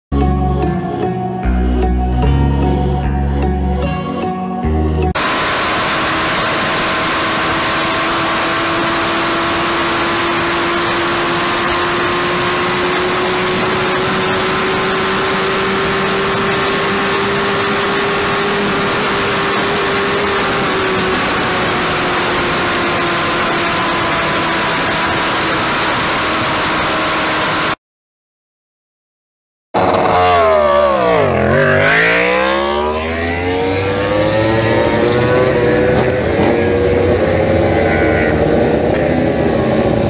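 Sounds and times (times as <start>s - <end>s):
motorcycle engine at high revs: 5.2s - 27.8s, 29.8s - 40.0s
wind rush on camera: 13.0s - 27.4s.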